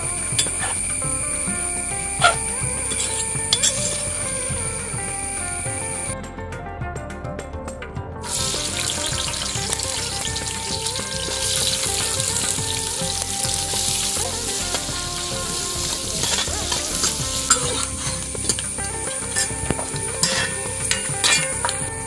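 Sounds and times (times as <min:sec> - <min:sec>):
frying sizzle: 0:08.3 - 0:21.7.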